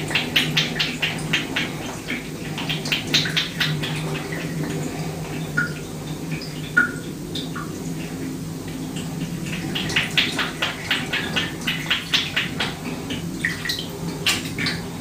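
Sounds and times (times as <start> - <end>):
water drips plinking: 0.0 - 4.7, 5.4 - 7.8
soft water splashes in bathtub: 0.0 - 15.0
steady low hum: 0.0 - 15.0.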